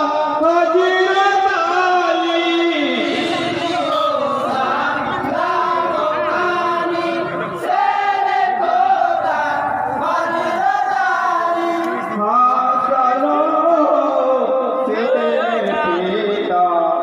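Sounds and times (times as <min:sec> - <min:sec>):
men singing in chorus: 0:00.0 - 0:16.2
singer on a microphone: 0:00.0 - 0:17.0.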